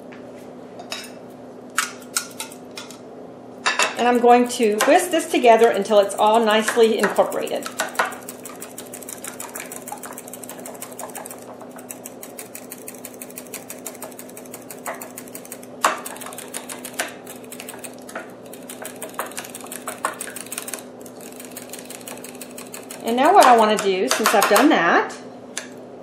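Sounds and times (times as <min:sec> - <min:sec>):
utensil clicking on glass bowl: 0:05.9 - 0:24.6.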